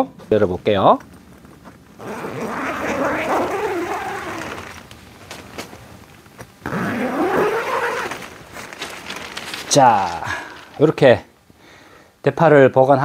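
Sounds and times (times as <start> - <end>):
tent zipper clicks: 1.6 - 9.8.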